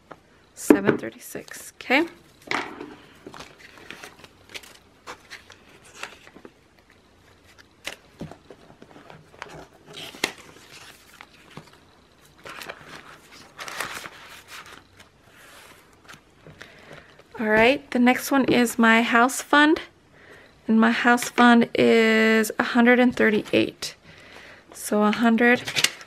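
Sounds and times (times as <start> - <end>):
banknotes rustling: 3.0 - 17.1.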